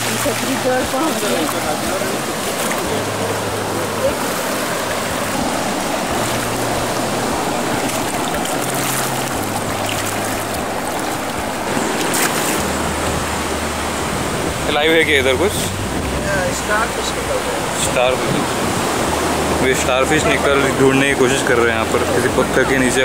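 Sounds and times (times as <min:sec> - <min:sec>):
feet splashing in water: 0:00.0 - 0:13.1
shallow water rushing: 0:00.0 - 0:23.0.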